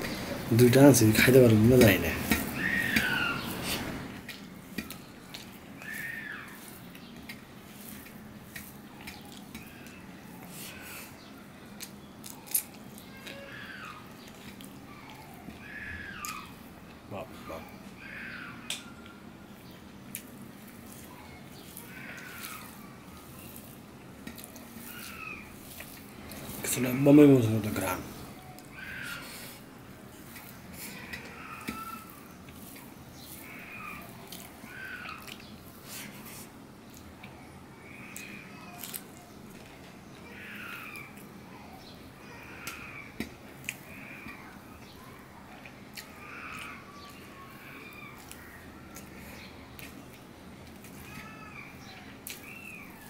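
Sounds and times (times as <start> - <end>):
animal calling: 0.0 - 4.0, 5.3 - 6.8, 12.2 - 19.3, 20.9 - 23.8, 24.4 - 36.4, 40.2 - 49.9
fingers squishing rice: 0.0 - 53.0
hand mixing food on steel plate: 0.0 - 53.0.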